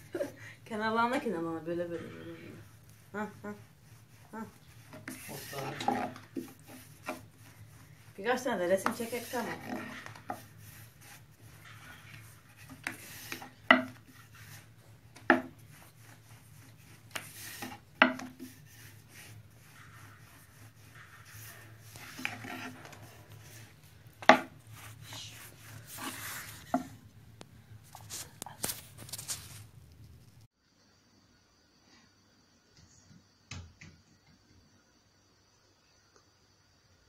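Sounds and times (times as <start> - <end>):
hands rubbing filling in steel tray: 2.6 - 27.0.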